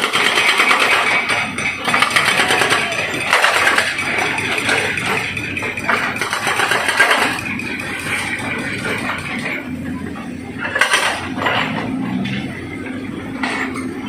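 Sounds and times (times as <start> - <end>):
excavator engine running: 0.0 - 14.0.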